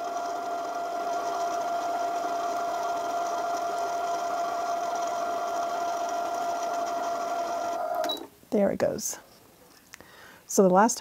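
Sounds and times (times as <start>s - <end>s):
sewing machine motor whine: 0.0s - 8.1s.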